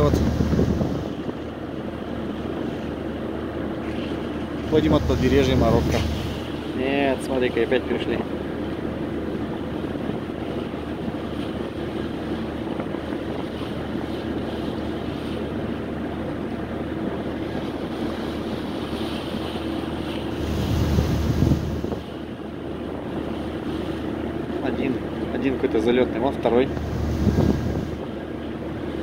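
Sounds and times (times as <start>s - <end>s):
wind on microphone: 0.0s - 1.6s, 3.6s - 6.9s, 9.2s - 15.1s, 17.1s - 24.2s, 26.6s - 29.0s
ship engines humming: 0.0s - 29.0s
water rushing along hull: 0.0s - 29.0s.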